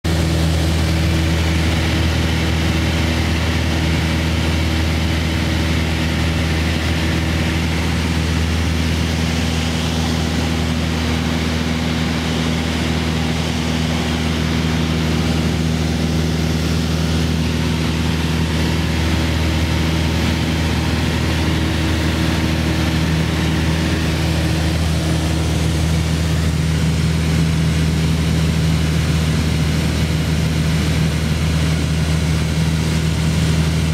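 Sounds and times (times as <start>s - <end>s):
light aircraft engine drone: 0.1s - 33.9s.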